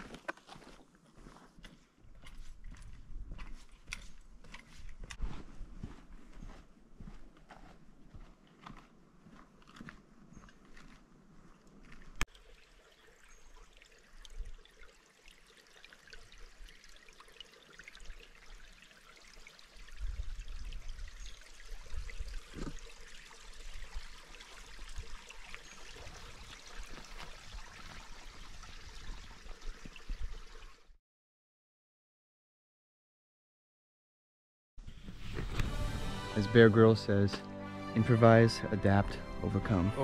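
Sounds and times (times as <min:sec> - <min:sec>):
stream running over rocks: 0:11.5 - 0:31.0.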